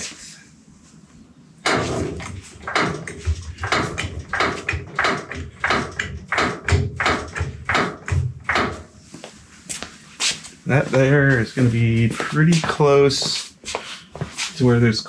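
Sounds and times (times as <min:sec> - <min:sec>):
deep thumps: 0:01.6 - 0:09.0
floor jack clacking: 0:01.7 - 0:08.9.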